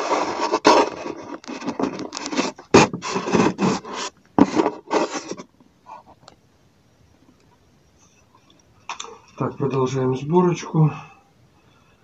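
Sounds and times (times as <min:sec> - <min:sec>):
scraping and rubbing handling noise: 0:00.0 - 0:06.3.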